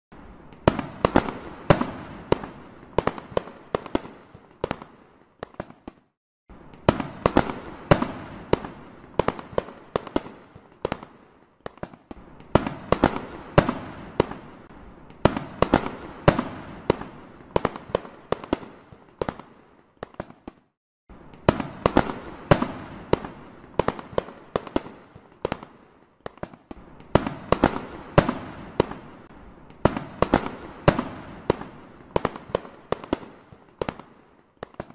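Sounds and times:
fireworks bursting: 0:00.1 - 0:34.9.

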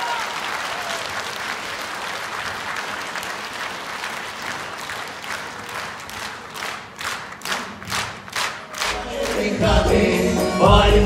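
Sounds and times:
audience applauding: 0:00.0 - 0:10.0
rhythmic clapping in unison: 0:02.2 - 0:10.9.

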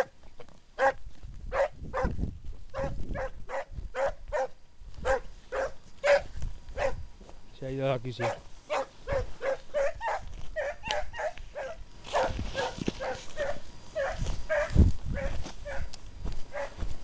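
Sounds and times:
hounds baying: 0:00.8 - 0:02.1, 0:02.7 - 0:07.0, 0:08.2 - 0:16.8
brush rustling: 0:11.3 - 0:17.0.

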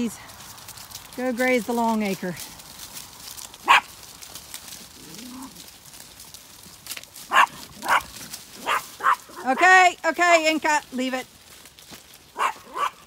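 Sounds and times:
small dog barking: 0:03.6 - 0:03.9, 0:07.3 - 0:09.4, 0:12.4 - 0:13.0.

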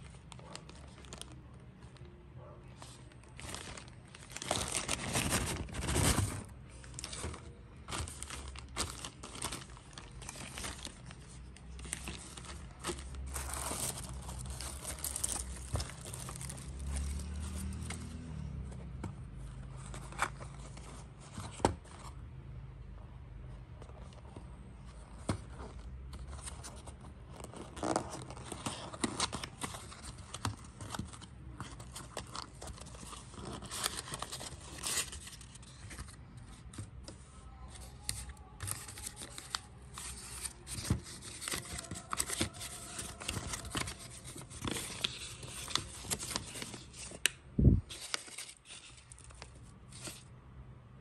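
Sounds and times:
tissue paper crinkling: 0:00.0 - 0:01.9, 0:02.8 - 0:17.9, 0:37.7 - 0:47.3, 0:47.9 - 0:50.3.

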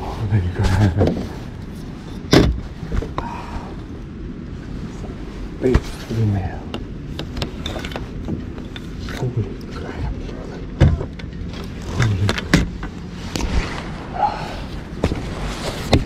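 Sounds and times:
low grunts or breaths: 0:14.0 - 0:15.0.

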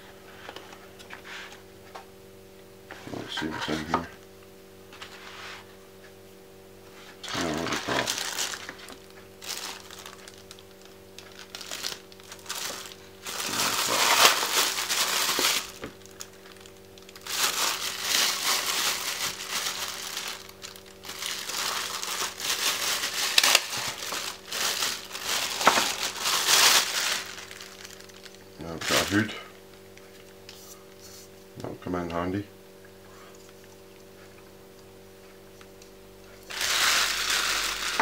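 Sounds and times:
plastic wrapping crinkling: 0:07.2 - 0:30.6, 0:36.4 - 0:38.0.

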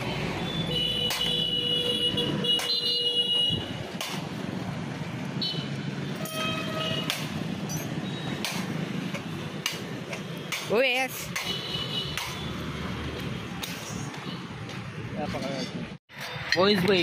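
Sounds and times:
street traffic: 0:00.0 - 0:17.0
vehicle horns tooting: 0:00.5 - 0:03.7, 0:05.4 - 0:07.2.

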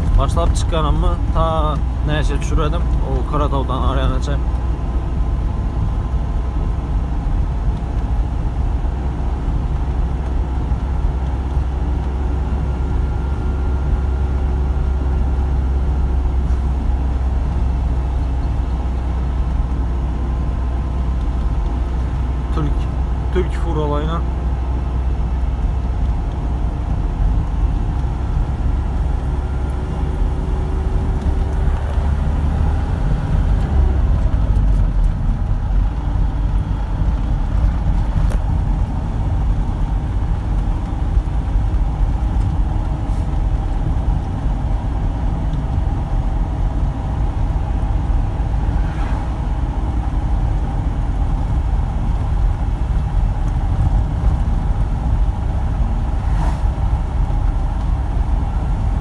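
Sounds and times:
road noise: 0:00.0 - 0:59.0
truck engine rumbling: 0:00.0 - 0:59.0.

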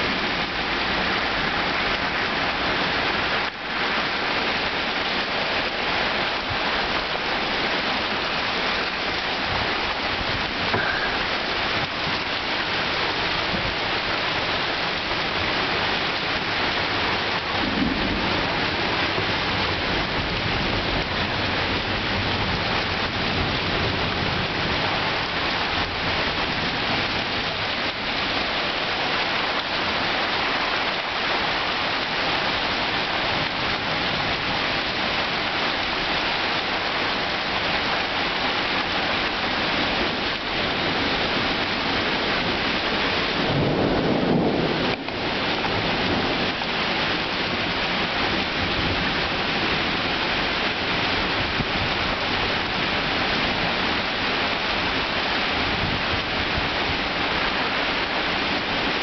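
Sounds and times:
heavy rain pouring: 0:00.0 - 0:59.0
thunder rumble: 0:17.0 - 0:25.1, 0:41.0 - 0:50.0.

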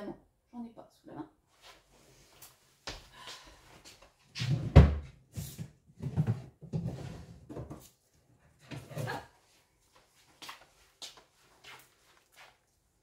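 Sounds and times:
knocks and thumps: 0:06.0 - 0:07.8.

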